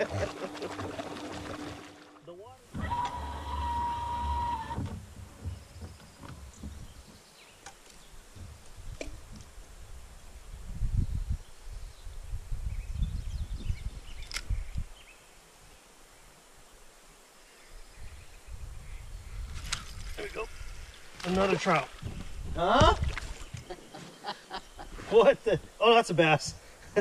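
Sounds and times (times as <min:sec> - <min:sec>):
wind rumble on microphone: 0:08.0 - 0:15.1, 0:17.8 - 0:21.2, 0:21.9 - 0:23.8.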